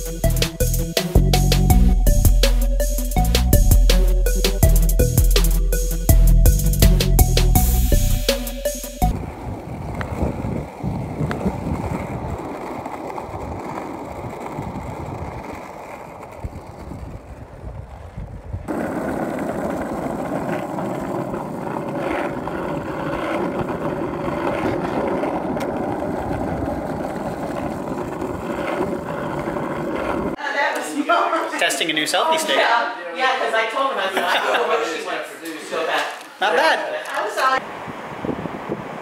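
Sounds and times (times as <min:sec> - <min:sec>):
skateboard wheels rolling on asphalt: 0:00.0 - 0:02.5, 0:06.4 - 0:35.0, 0:35.6 - 0:39.0
rushing outdoor noise: 0:09.1 - 0:30.4, 0:37.6 - 0:39.0.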